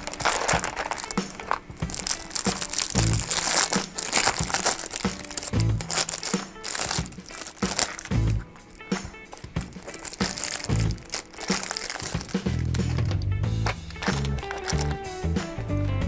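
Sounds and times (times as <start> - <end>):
plastic film crinkling: 0.0 - 15.1
background music with bass hits: 0.6 - 16.0.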